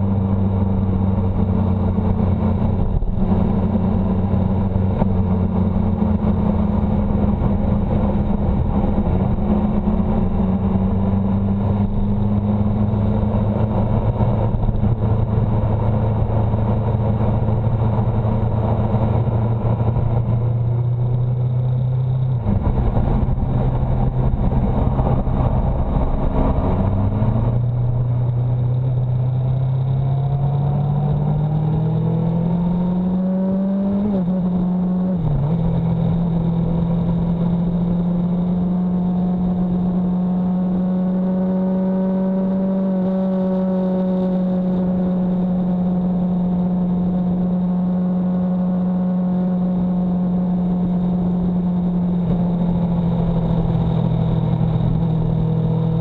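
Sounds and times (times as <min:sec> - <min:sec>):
rushing wind noise: 0:00.0 - 0:37.2
vehicle engine accelerating: 0:00.0 - 0:56.0.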